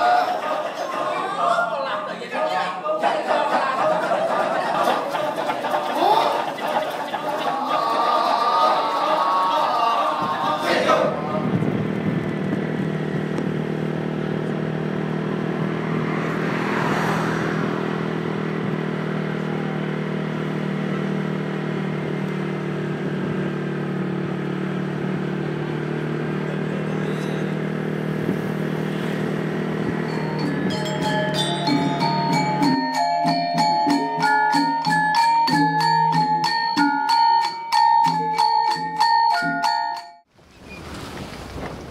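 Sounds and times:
motorbike engine droning: 5.0s - 37.3s.

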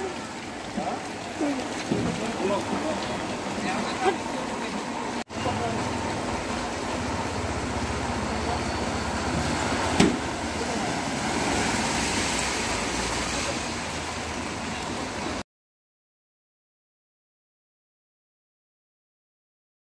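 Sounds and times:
car driving through water: 0.0s - 15.4s.

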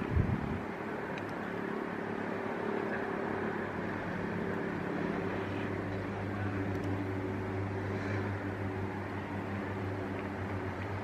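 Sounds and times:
wind rushing: 0.0s - 0.7s
low engine drone: 0.0s - 11.0s
sea noise: 0.0s - 11.0s.

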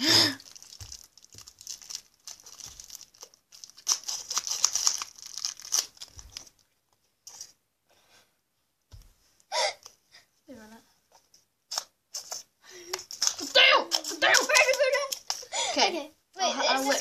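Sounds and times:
plastic wrapper crinkling: 0.1s - 6.7s, 11.7s - 15.5s.

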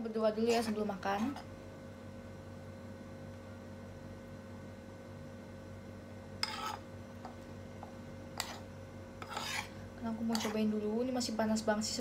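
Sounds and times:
low electrical hum: 0.0s - 12.0s
metal spoon scraping a pan: 6.4s - 6.9s, 8.4s - 10.8s.

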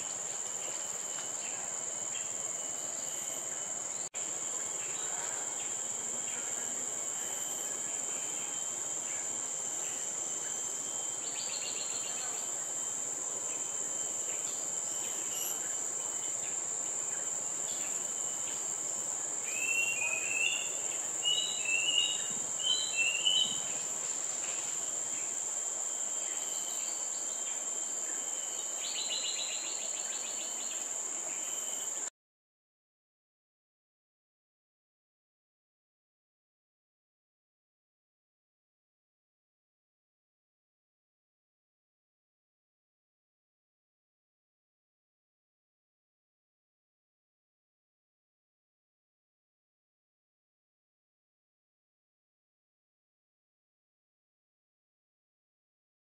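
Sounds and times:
buzzy insect trills: 0.0s - 32.1s
forest insects droning: 0.0s - 32.1s.

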